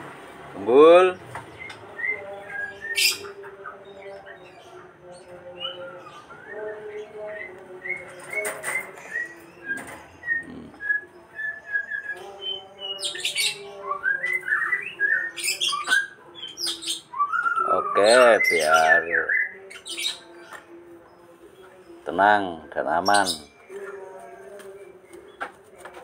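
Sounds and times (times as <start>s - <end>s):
bird chirping: 1.0s - 25.6s.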